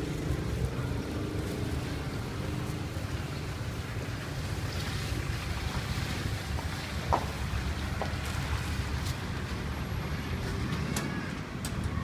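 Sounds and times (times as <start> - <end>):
faint engine hum: 0.0 - 12.0
street background hiss: 0.0 - 12.0.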